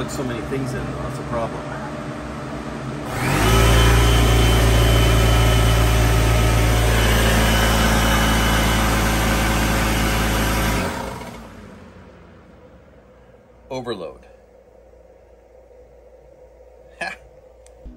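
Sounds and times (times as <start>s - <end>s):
electric air compressor humming: 3.0s - 11.7s.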